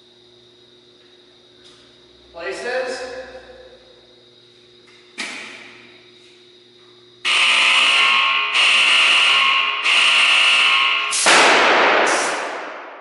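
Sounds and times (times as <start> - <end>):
warning buzzer: 7.2 - 11.2
loud capacitor discharge bang: 10.7 - 13.0.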